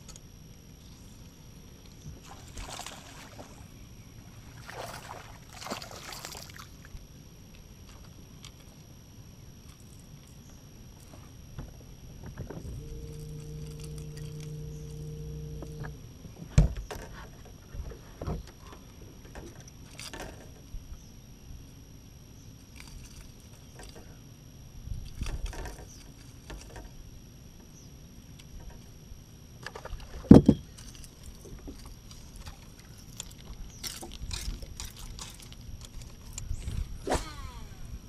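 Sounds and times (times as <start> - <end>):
electric trolling motor humming: 0.0 - 38.0.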